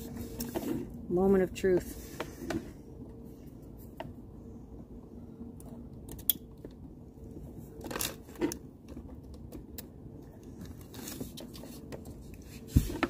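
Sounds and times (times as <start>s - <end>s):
cables rustling and rattling: 6.6s - 13.0s.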